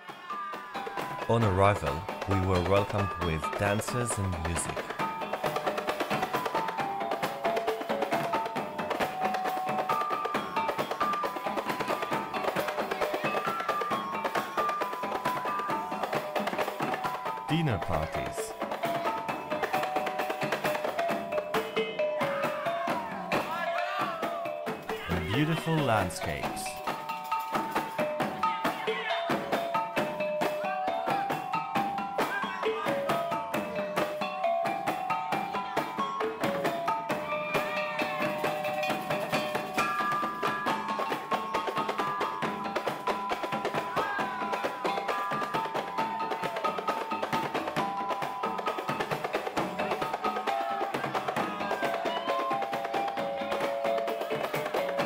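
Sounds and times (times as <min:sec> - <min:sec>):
steady percussive beat: 0:00.5 - 0:55.0.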